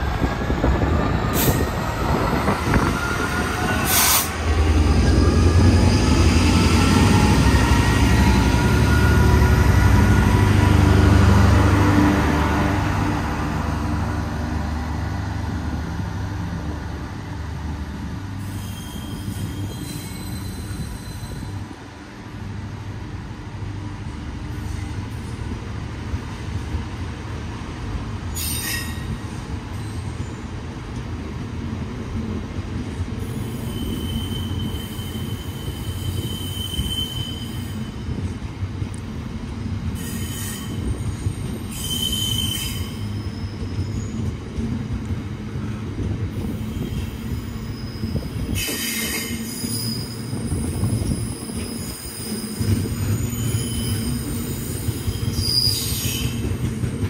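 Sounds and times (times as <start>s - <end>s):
train wheels rumbling on rail: 0.0s - 57.0s
wheel screeches and squeal: 18.4s - 21.6s, 28.4s - 30.3s, 33.3s - 38.0s, 40.0s - 44.3s, 46.4s - 56.5s.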